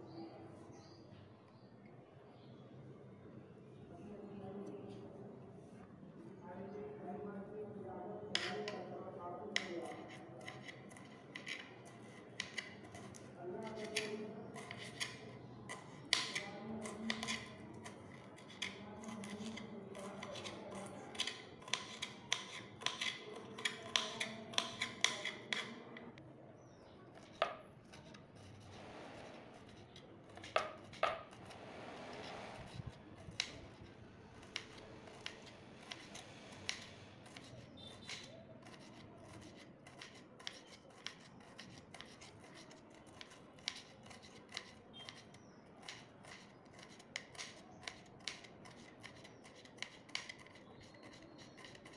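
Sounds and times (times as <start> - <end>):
knife chopping on wooden board: 8.4 - 8.8, 9.6 - 25.8, 27.1 - 33.8, 34.4 - 51.9.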